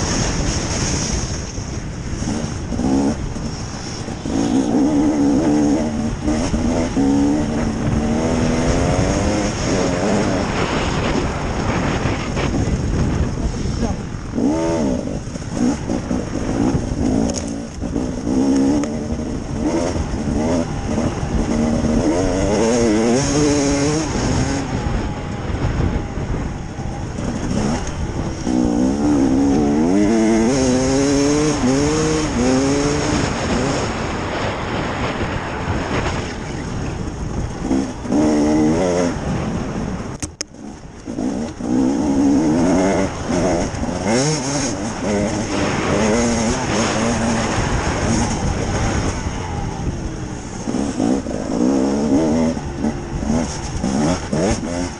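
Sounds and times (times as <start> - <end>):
two-stroke motorcycle engine revving: 0.0 - 54.9
wind and track noise: 0.0 - 54.9.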